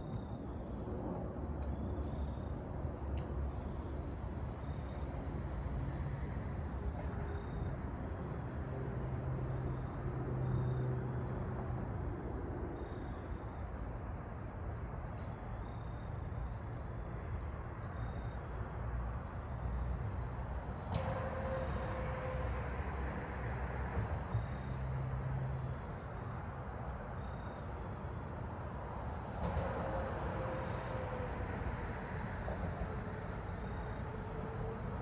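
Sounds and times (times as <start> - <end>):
road traffic noise: 0.0 - 35.0
vehicle hum passing: 17.0 - 35.0.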